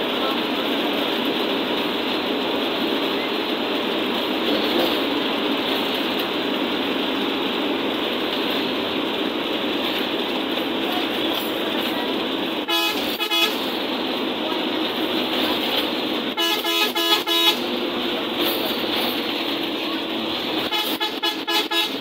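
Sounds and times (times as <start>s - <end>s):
bus engine and road noise: 0.0s - 22.0s
vehicle horn: 12.6s - 13.7s, 16.4s - 17.7s, 20.6s - 22.0s.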